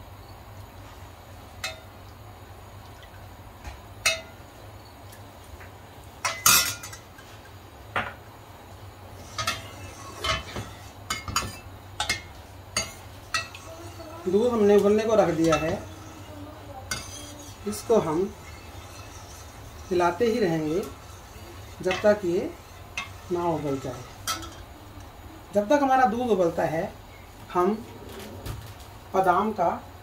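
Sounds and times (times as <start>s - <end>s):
low steady hum: 0.0s - 30.0s
ladle clinking against metal pot: 4.0s - 4.4s, 16.9s - 24.7s.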